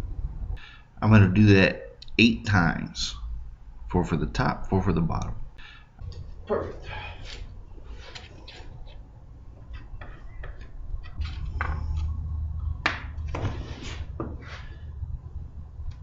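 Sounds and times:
low steady hum: 0.0s - 16.0s
wooden blocks knocking: 9.6s - 12.1s.

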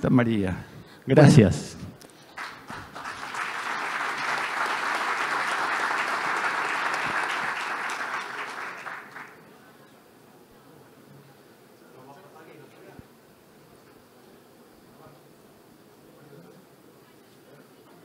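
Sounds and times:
audience applauding: 2.2s - 9.6s.

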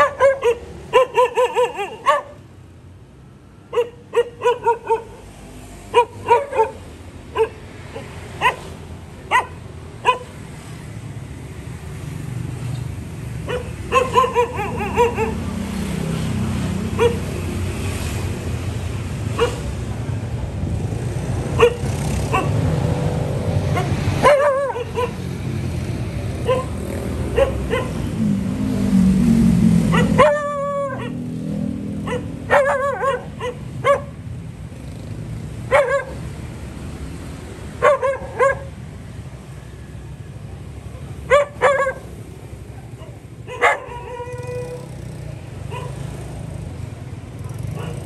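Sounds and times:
dog barking: 0.0s - 2.4s, 3.7s - 5.3s, 5.9s - 8.7s, 9.3s - 10.4s, 13.4s - 15.7s, 17.0s - 17.3s, 19.3s - 19.7s, 21.5s - 22.7s, 23.7s - 25.3s, 26.4s - 28.0s, 29.9s - 31.2s, 32.0s - 34.2s, 35.7s - 36.3s, 37.8s - 38.8s, 40.9s - 42.2s, 42.9s - 44.8s, 45.6s - 46.2s, 47.4s - 48.0s.

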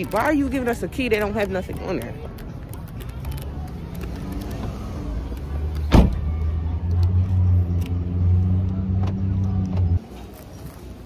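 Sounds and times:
car engine and road rumble: 0.0s - 11.0s
sharp thump: 5.9s - 6.2s.

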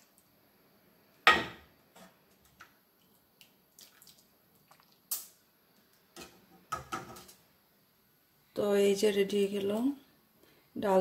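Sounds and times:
liquid dripping and splashing: 3.0s - 5.4s.

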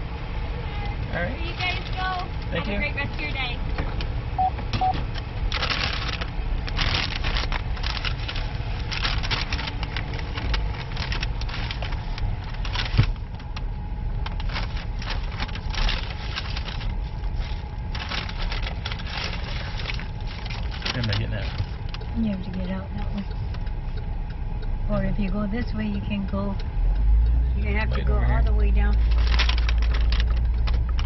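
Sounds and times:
car engine and road rumble: 0.0s - 31.0s.

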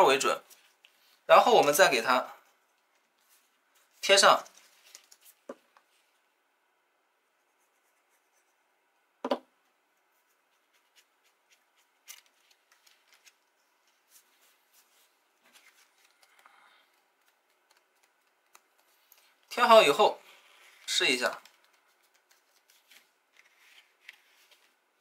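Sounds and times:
paper rustle: 0.4s - 1.2s, 2.8s - 6.0s, 10.5s - 19.5s, 20.3s - 24.8s
sharp knock on tabletop: 9.2s - 9.5s.

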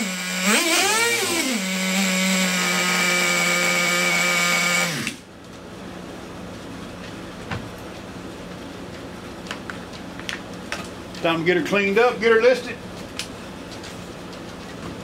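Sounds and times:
small nitro engine running: 0.0s - 5.1s.

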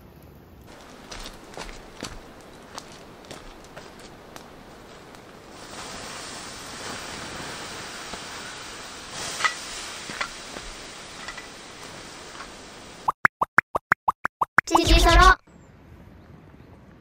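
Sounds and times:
fire pops and crackles: 0.2s - 13.1s
wood fire hissing: 0.6s - 13.1s.

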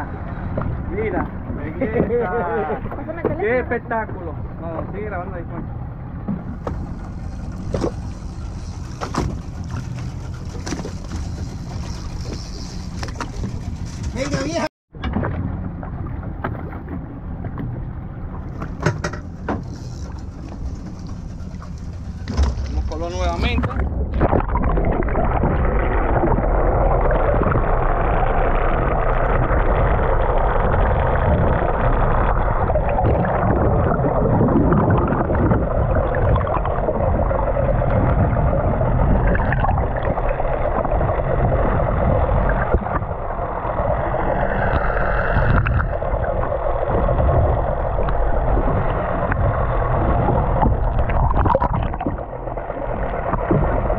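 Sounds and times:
boat engine rumbling: 0.0s - 53.9s
water rushing past hull: 0.0s - 53.9s
waves splashing: 0.0s - 53.9s.

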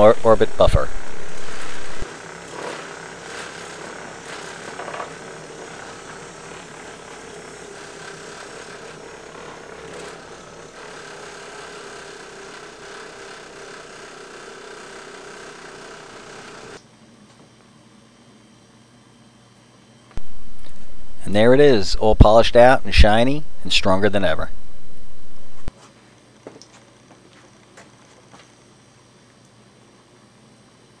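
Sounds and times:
orbit buffer running: 0.0s - 17.4s, 20.2s - 25.7s.

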